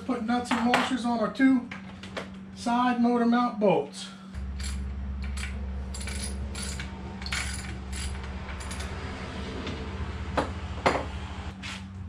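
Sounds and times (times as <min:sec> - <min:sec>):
steady low hum: 0:00.0 - 0:12.0
metal clinks of nuts and wrench: 0:04.4 - 0:09.0.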